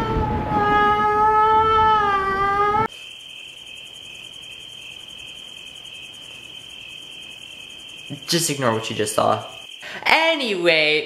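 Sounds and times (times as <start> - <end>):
crickets chirping: 2.8 - 11.0.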